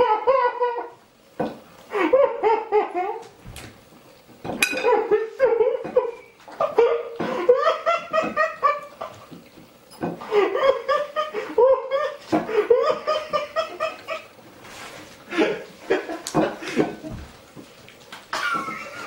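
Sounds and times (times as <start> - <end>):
person laughing: 10.2 - 14.3, 15.3 - 17.2, 18.3 - 19.0.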